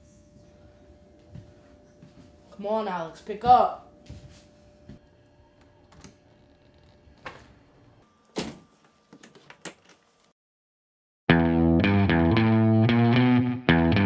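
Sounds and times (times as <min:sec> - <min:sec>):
loud guitar music: 0:11.3 - 0:14.0.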